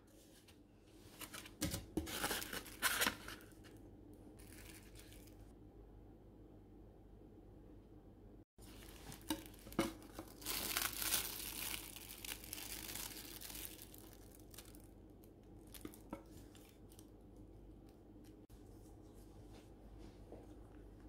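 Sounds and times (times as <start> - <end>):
plastic film crinkling: 2.0 - 3.7, 4.4 - 5.5, 8.6 - 14.9.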